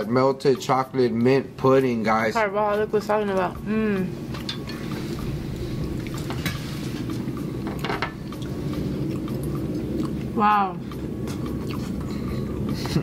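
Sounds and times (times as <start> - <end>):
low background hum: 0.0 - 13.0
plates and utensils clinking: 4.2 - 5.3, 6.0 - 9.6.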